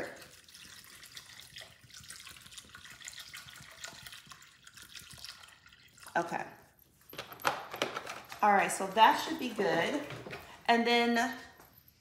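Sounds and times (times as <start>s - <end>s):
water pouring into a bowl: 0.0s - 6.2s.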